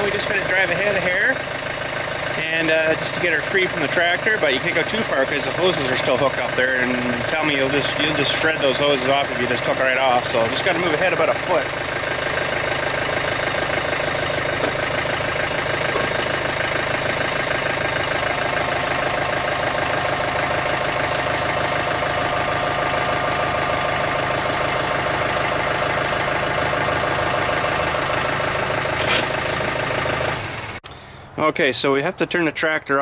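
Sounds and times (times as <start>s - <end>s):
diesel engine idling: 0.0s - 32.8s.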